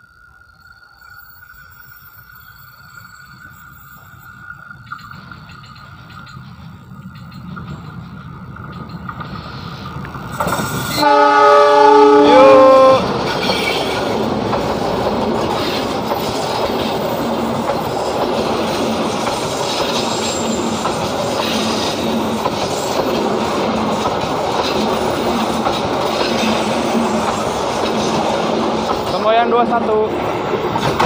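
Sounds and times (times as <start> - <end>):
train wheels clattering on rails: 1.7 - 11.6, 12.4 - 31.0
diesel locomotive rumble: 4.5 - 31.0
train horn chord: 10.9 - 14.2.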